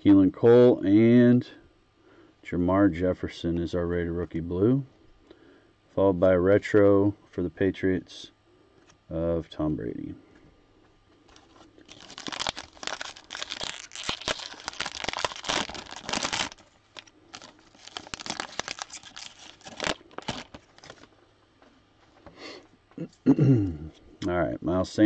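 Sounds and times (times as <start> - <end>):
cellophane wrapper crinkling and tearing: 11.3 - 21.1.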